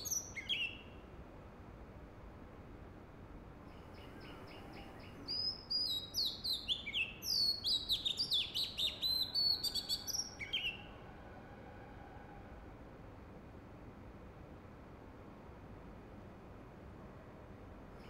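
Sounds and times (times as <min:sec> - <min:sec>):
bird singing whistled notes: 0:00.0 - 0:01.0, 0:03.7 - 0:10.9.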